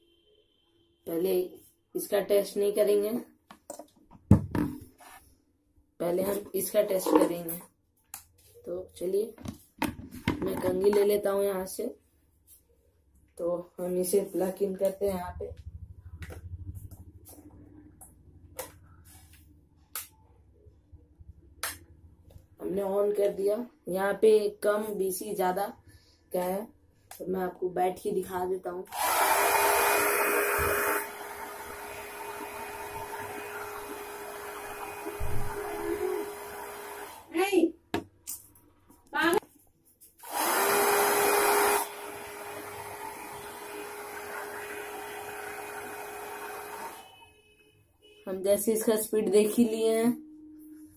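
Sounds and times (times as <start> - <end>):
hair dryer running: 28.9 - 37.3, 40.2 - 47.1.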